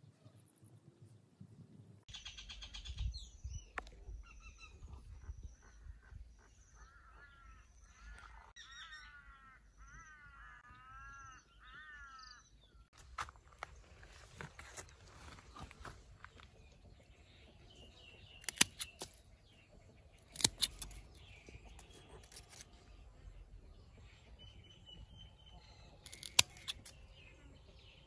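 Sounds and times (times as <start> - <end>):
birds chirping: 0.0 - 28.0
wavering bird calls: 4.1 - 12.8.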